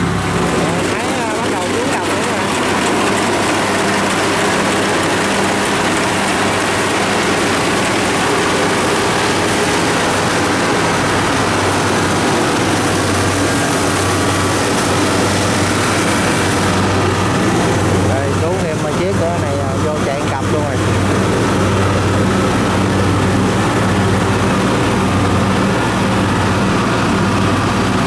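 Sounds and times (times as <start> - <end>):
combine harvester engine drone: 0.0 - 28.0.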